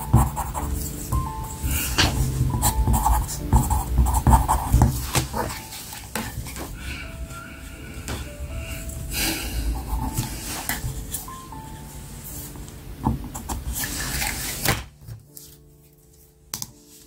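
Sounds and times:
pencil scratching on paper: 0.0s - 6.7s, 9.7s - 12.5s, 13.2s - 14.7s.

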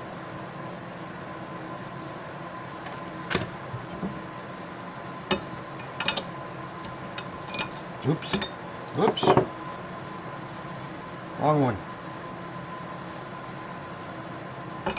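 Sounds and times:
faint steady hum: 0.0s - 14.9s
metal parts clicking and clinking: 5.8s - 6.3s, 7.2s - 8.6s.

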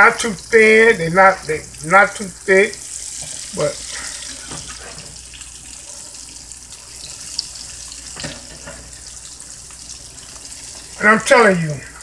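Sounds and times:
croquettes sizzling in hot oil: 1.6s - 11.0s.

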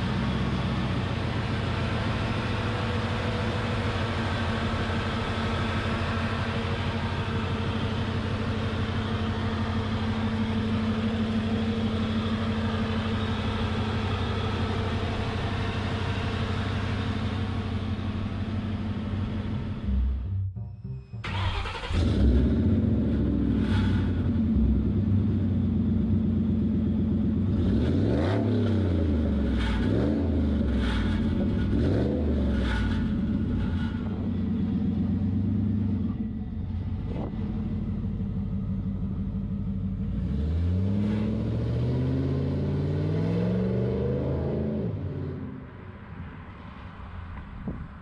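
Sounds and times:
supercharged car engine revving: 21.2s - 25.0s, 27.4s - 34.3s, 40.0s - 45.7s.

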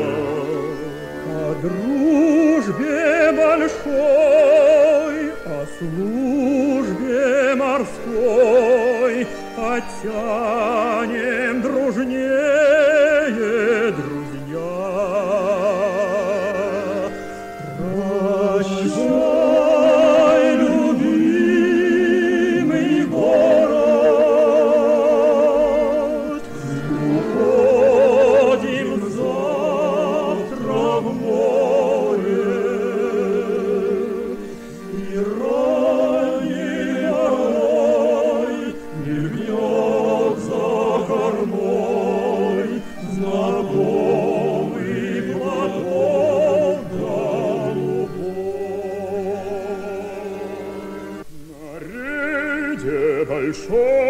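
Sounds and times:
button accordion: 0.0s - 51.6s
men singing together: 17.7s - 48.5s.

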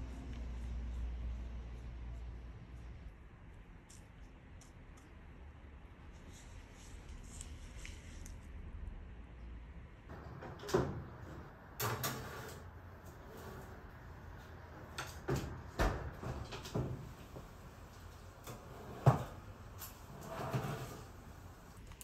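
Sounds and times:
oven door shutting: 10.1s - 21.6s.

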